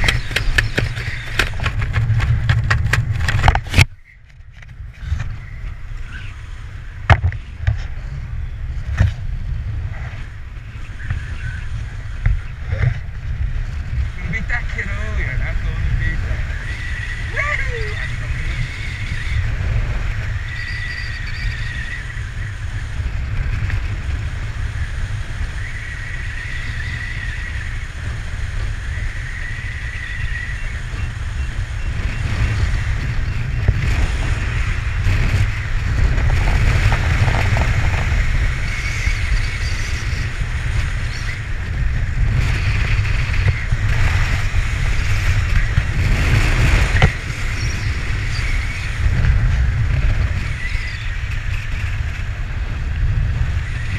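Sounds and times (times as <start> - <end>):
wind buffeting microphone: 0.0 - 53.9.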